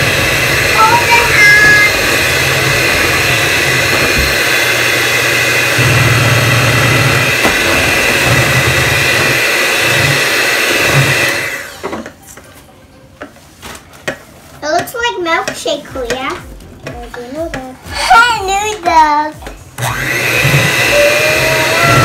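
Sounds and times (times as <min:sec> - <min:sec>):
electric hand mixer whining: 0:00.0 - 0:12.2, 0:19.8 - 0:22.0.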